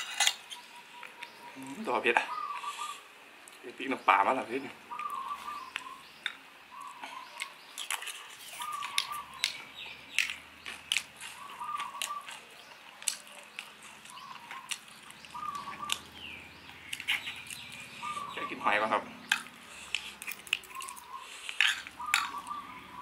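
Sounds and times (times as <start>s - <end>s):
cutlery clinking on ceramic plate: 0.0s - 0.5s
bird calling: 0.2s - 3.1s, 3.9s - 23.0s.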